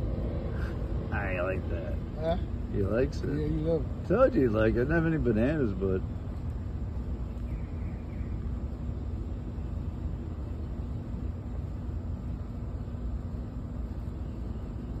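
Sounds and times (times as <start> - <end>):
faint constant hum: 0.0 - 15.0
low outdoor rumble: 0.0 - 15.0.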